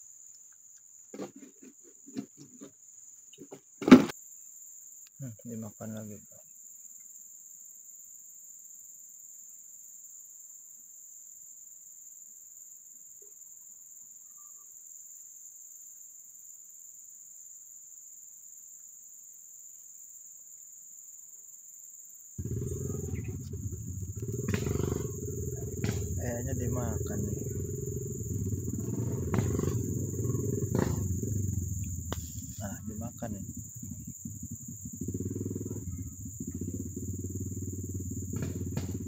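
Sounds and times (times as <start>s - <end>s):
insects droning: 0.0s - 39.0s
loud low rumbling: 22.4s - 39.0s.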